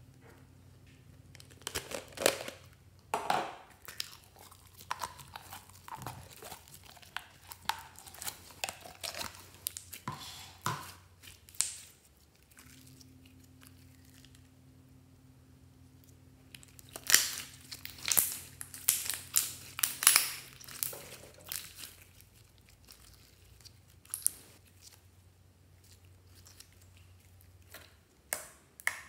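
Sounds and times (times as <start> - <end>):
slime squelching and popping: 3.7 - 14.4, 16.5 - 25.0.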